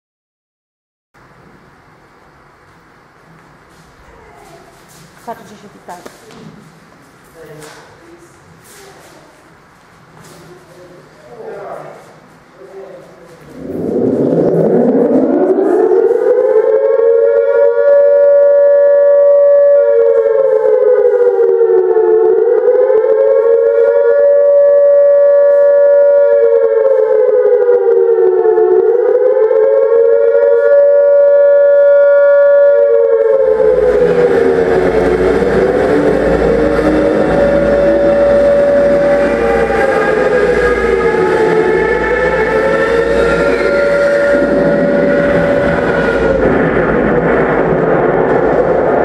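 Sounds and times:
loud low rumbling: 10.5 - 49.0
air-raid siren wailing: 13.2 - 49.0.

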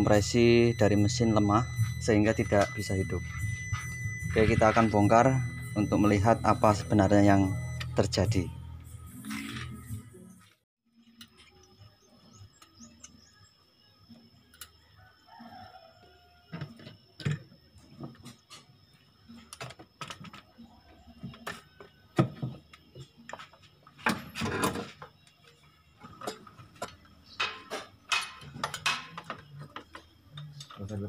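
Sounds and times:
tools and engine parts clattering: 16.6 - 31.0.

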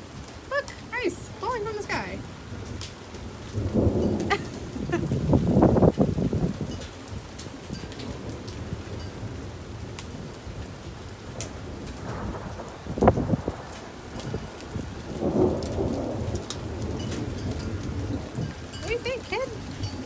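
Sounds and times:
rain falling on a wooden deck: 0.0 - 20.0
thunder rumbling: 0.0 - 20.0
sharp thunder crack: 2.2 - 6.7, 11.4 - 18.6.

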